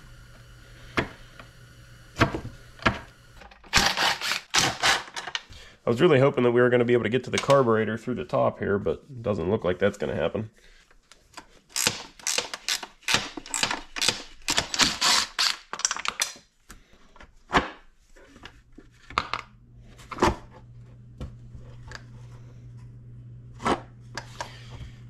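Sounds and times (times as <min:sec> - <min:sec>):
low steady hum: 0:18.0 - 0:25.0.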